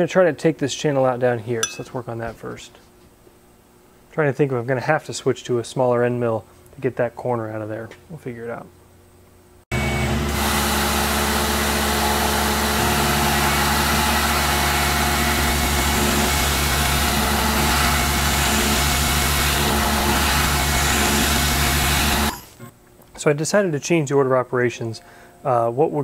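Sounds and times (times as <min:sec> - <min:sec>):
milling machine cutting hiss: 0:12.8 - 0:22.5.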